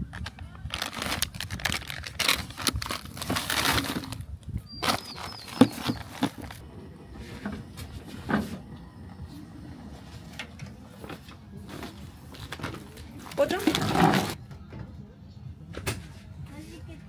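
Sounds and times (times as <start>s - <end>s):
plastic packaging rustling: 0.0s - 6.6s
bird chirping: 4.6s - 6.3s.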